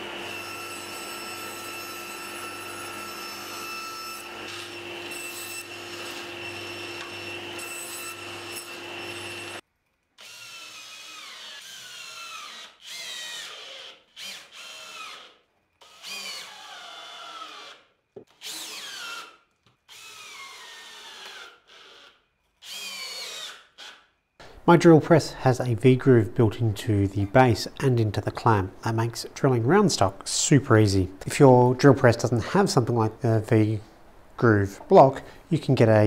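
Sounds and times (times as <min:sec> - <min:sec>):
drill driving screws: 0:10.2 - 0:24.0.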